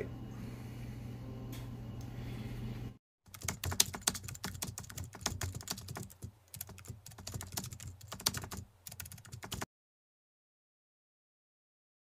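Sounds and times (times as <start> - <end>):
computer keyboard typing: 3.3 - 9.7.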